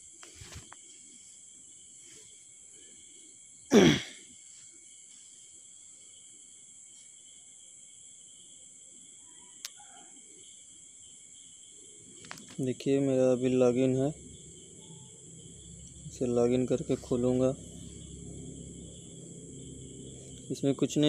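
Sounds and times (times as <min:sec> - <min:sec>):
high-pitched whine: 0:12.9 - 0:21.0.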